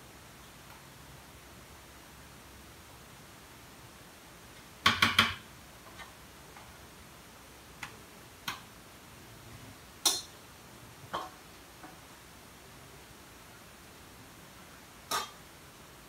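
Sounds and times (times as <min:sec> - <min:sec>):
kitchen utensils clicking and knocking: 0:15.1 - 0:15.4.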